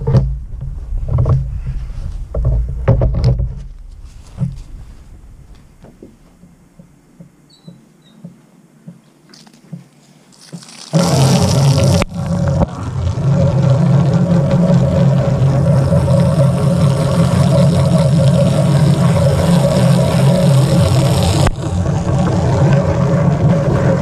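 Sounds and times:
water spray hissing: 10.3s - 12.8s, 14.6s - 21.6s
pressure washer humming: 10.4s - 24.0s.

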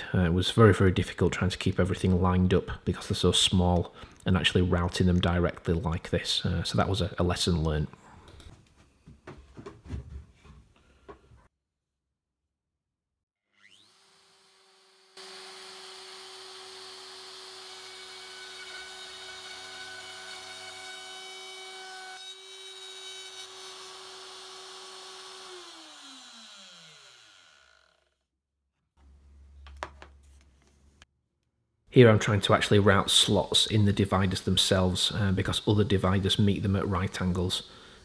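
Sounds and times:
router winding down: 13.5s - 19.6s, 22.6s - 28.2s
router running: 13.6s - 28.2s.

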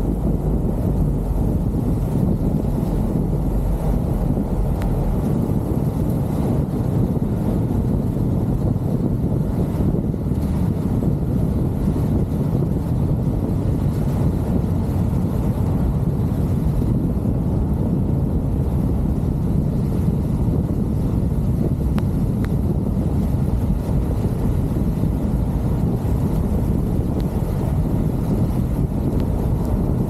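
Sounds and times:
car road noise: 0.0s - 30.0s
wind buffeting microphone: 0.0s - 30.0s.

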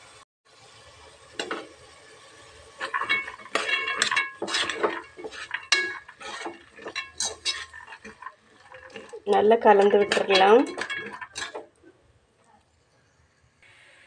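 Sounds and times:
metal ladle scraping a pot: 2.8s - 12.0s.

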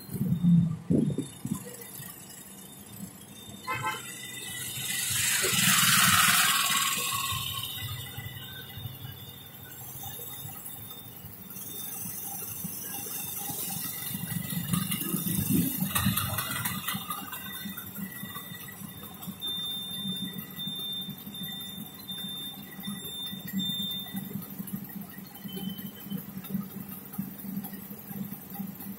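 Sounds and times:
idling engines in traffic: 0.0s - 28.9s.

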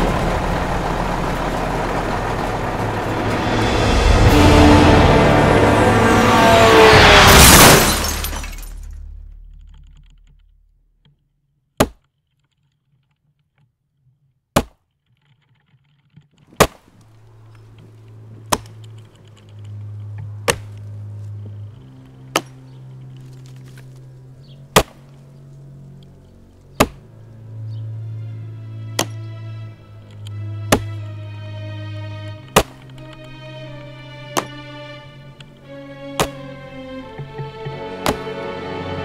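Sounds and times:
low sustained musical score: 0.0s - 10.4s, 17.1s - 39.0s
axe chopping tree trunk: 11.8s - 12.0s, 14.6s - 14.8s, 16.6s - 16.9s, 20.4s - 20.8s, 22.3s - 22.6s, 24.7s - 25.1s, 26.7s - 27.0s, 30.7s - 31.0s, 32.5s - 32.9s, 38.0s - 38.3s.

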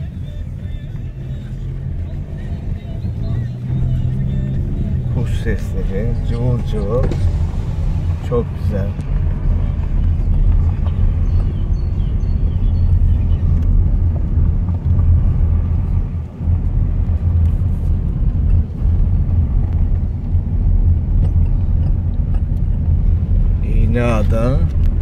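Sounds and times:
car on gravel road rumbling: 0.0s - 25.0s.

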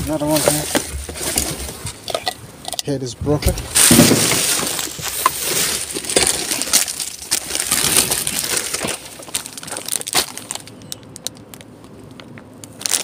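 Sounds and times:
plastic bags rustling: 0.0s - 2.4s, 3.7s - 11.7s, 12.6s - 13.0s.

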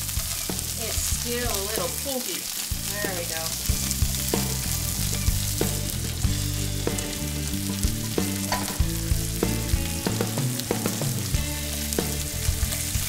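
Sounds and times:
sausages sizzling in a frying pan: 0.0s - 13.0s
metal tongs clicking on pan: 8.5s - 8.8s.

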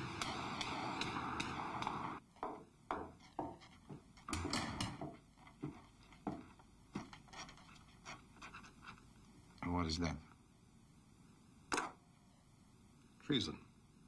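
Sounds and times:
steady hiss with faint clicks: 0.0s - 2.3s, 5.1s - 14.0s.

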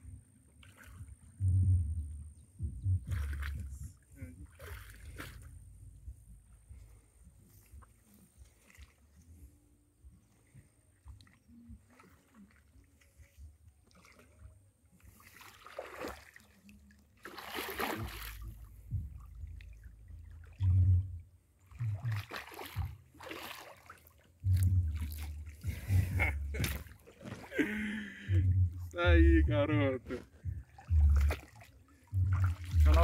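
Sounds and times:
dull low thumps: 1.0s - 7.9s, 17.9s - 23.1s, 24.4s - 33.0s
fish splashing and thrashing: 3.0s - 5.6s, 11.0s - 29.0s, 30.1s - 33.0s.

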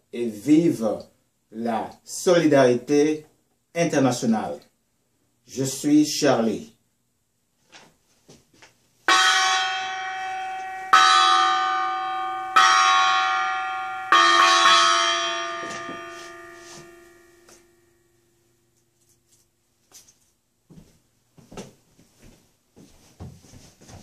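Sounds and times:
bell ringing: 9.1s - 18.0s.

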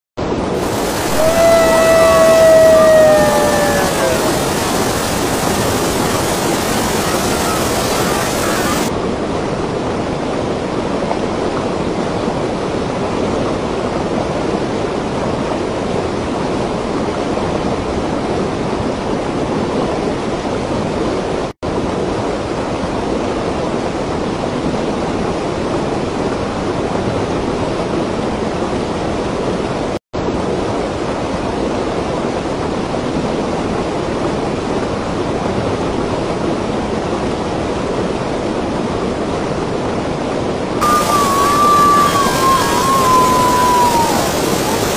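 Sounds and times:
water rushing down concrete cascade: 0.6s - 9.0s, 40.8s - 44.9s.

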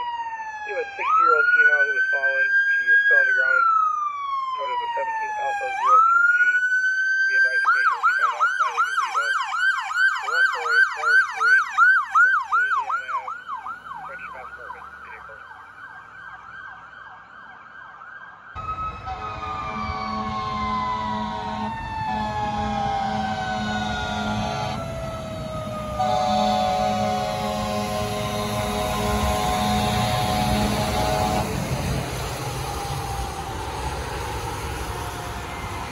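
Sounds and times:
electronic siren yelping: 0.0s - 35.9s
air horn blaring: 18.6s - 32.4s
mechanical siren winding down: 18.6s - 35.9s.

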